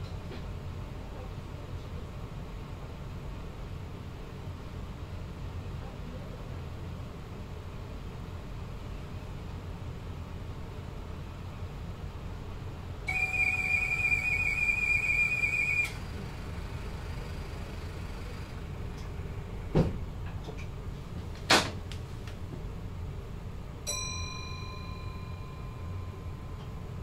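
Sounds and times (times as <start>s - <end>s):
electric train cab rumble: 6.8s - 27.0s
electronic beep of several pitches: 13.1s - 16.0s
high whistle-like tone: 13.1s - 16.2s.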